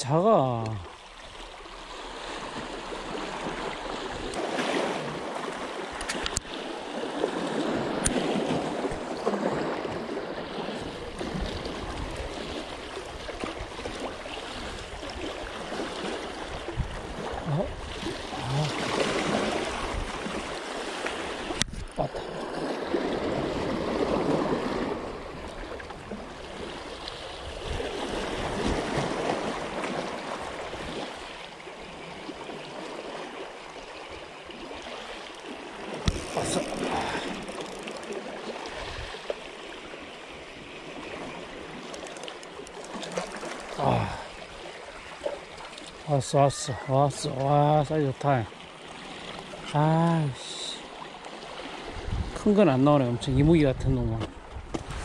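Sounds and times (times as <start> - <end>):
sea waves washing in: 0.0 - 53.3
sharp clicks: 41.8 - 43.8.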